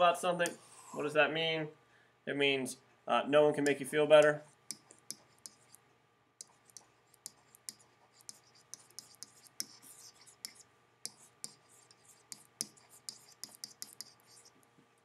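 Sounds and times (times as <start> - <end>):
stylus tapping and scratching tablet: 0.4 - 0.8, 3.6 - 5.8, 6.4 - 14.9.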